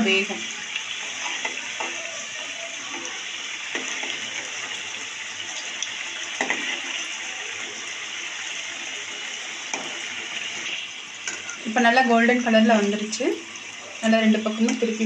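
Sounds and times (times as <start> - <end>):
samosas sizzling in hot oil: 0.0 - 15.0.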